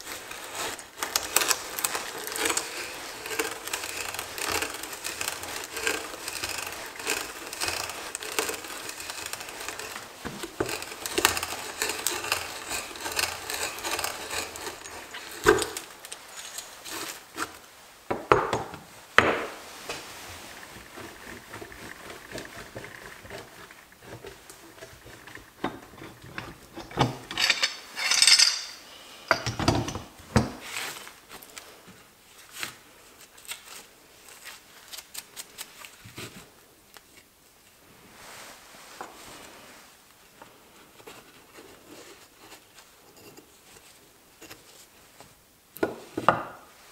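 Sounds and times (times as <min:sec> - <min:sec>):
hand brace boring through wood: 0:00.0 - 0:17.6, 0:19.3 - 0:28.8
wooden knocks and clatter: 0:20.6 - 0:27.8.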